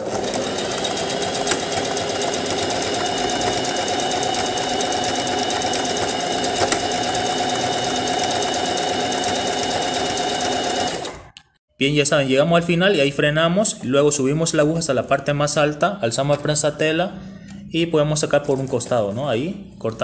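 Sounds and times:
sewing machine running: 0.0 - 11.3.

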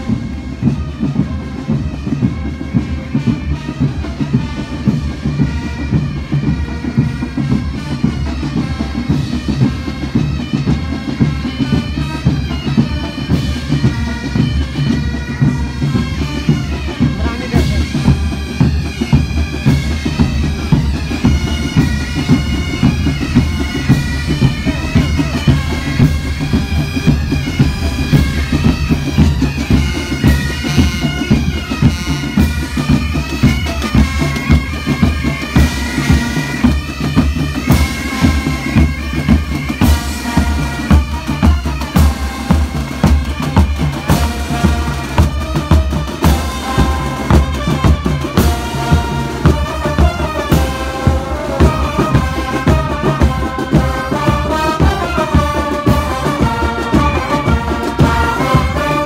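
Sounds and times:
steady drum beat: 0.0 - 59.0
tune over a drone: 20.8 - 30.4.

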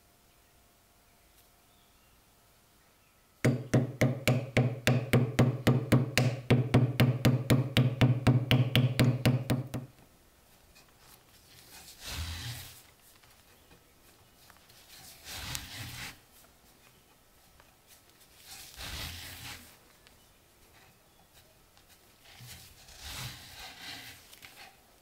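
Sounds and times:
hammer knocking wooden wedge: 3.5 - 9.9.

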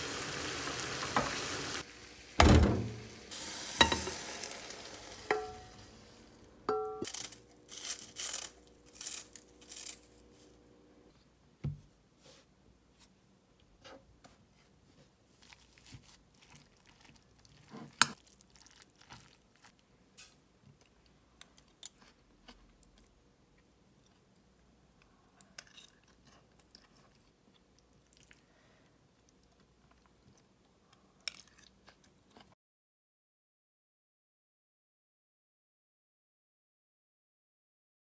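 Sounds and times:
food squishing: 15.3 - 19.9, 20.7 - 32.5.

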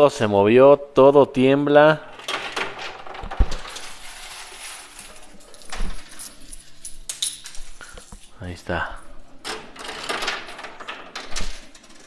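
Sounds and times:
coins clinking and rattling: 2.3 - 8.3, 9.4 - 12.0.

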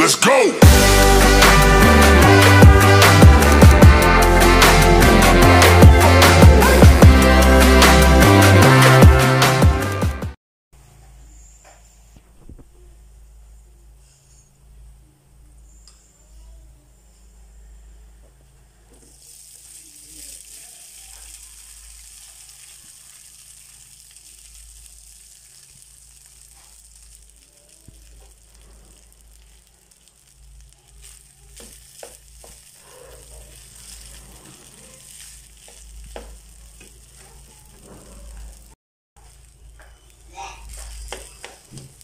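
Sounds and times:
rice sizzling in hot oil: 18.9 - 42.0
spatula scraping a pan: 31.0 - 38.2.

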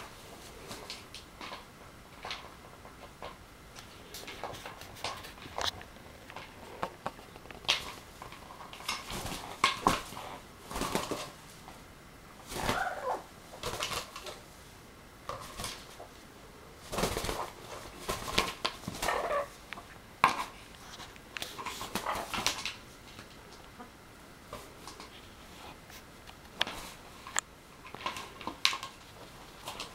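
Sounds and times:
parrot calling: 12.6 - 13.3, 19.0 - 19.6.

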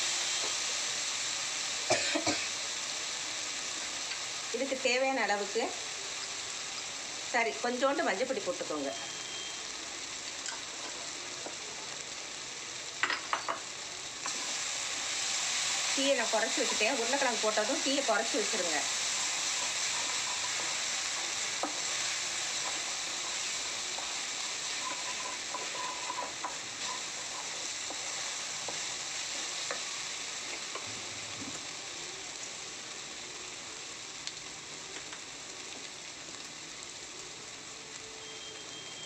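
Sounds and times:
food sizzling in oil: 0.0 - 39.0
spatula stirring and tapping pan: 18.4 - 29.9.

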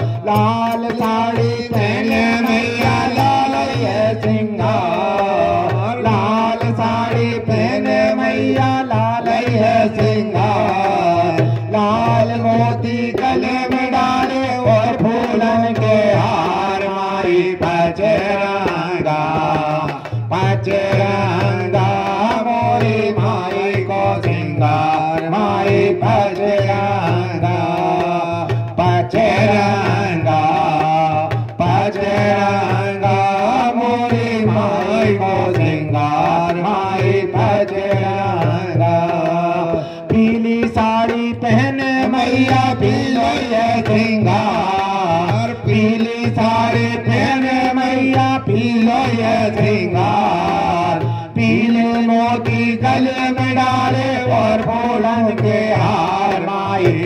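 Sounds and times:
hand drum beat: 0.0 - 57.0
men singing through microphones: 0.0 - 57.0.

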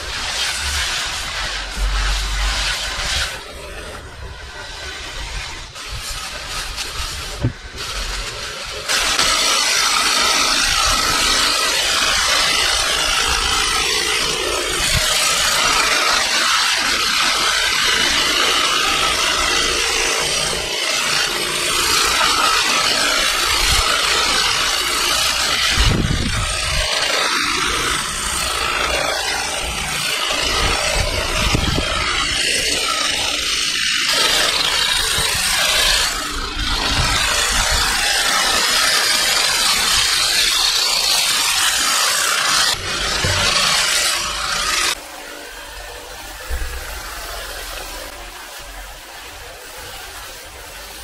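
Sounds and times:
hedge trimmer cutting: 6.3 - 45.0.

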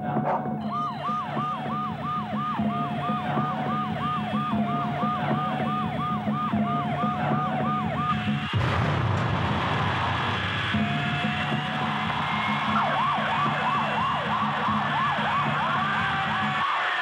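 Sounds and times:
steady held alarm tone: 0.1 - 8.7, 10.2 - 16.7
electronic alarm falling chirp: 0.6 - 8.4.

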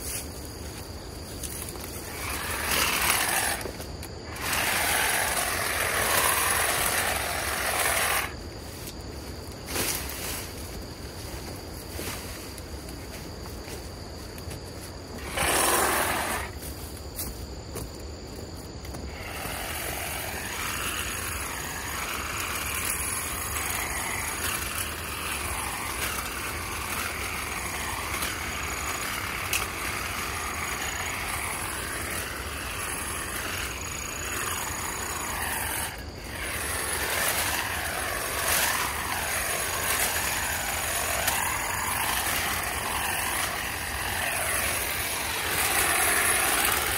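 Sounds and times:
power trimmer cutting brush: 1.4 - 8.4, 15.2 - 16.7, 18.9 - 46.9.

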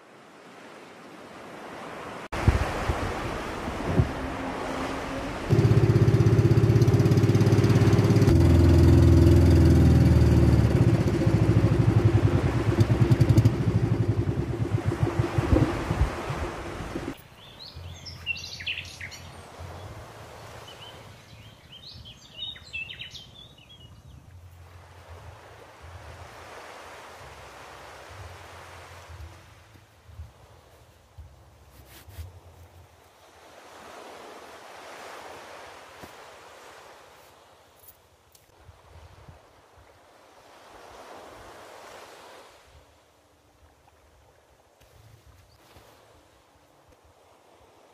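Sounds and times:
boat motor running: 4.5 - 17.2
birds chirping: 17.2 - 19.9, 20.7 - 24.3.

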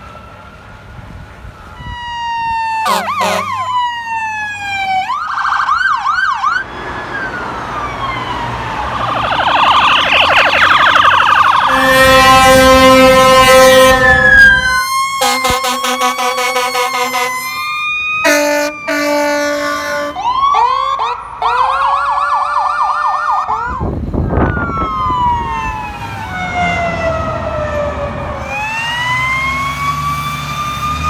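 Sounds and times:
siren wail: 0.0 - 31.0
pulsing siren: 1.4 - 31.0
siren yelp: 1.4 - 31.0
air horn blast: 2.8 - 3.6, 11.6 - 17.6, 18.2 - 20.2.

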